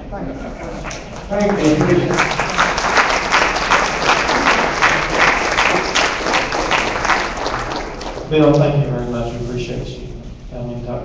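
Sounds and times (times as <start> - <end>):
audience applauding: 0.6 - 8.6.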